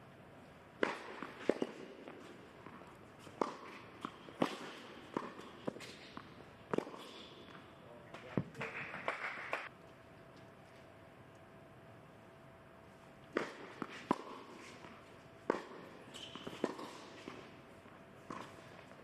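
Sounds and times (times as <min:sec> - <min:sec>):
tennis ball bouncing on court: 0:00.8 - 0:07.7, 0:13.3 - 0:19.0
rackets striking tennis ball: 0:00.8 - 0:09.7, 0:13.3 - 0:19.0.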